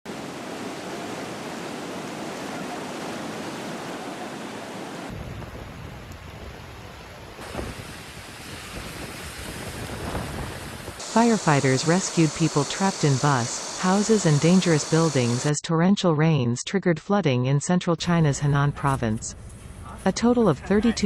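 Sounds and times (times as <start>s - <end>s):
rain: 0.1s - 15.5s
rushing floodwater: 0.1s - 15.5s.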